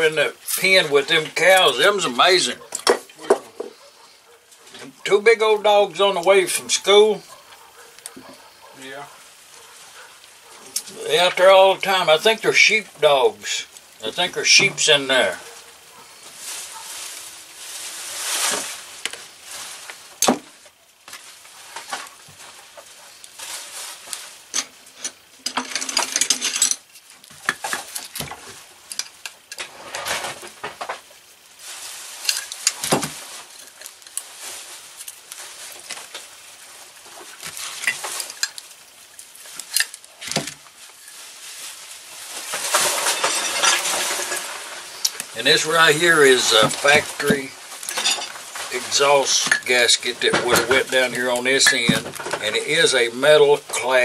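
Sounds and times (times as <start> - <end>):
metal tools clinking: 24.5 - 27.1, 42.6 - 45.2, 45.8 - 52.5
metal scraping: 42.2 - 54.0.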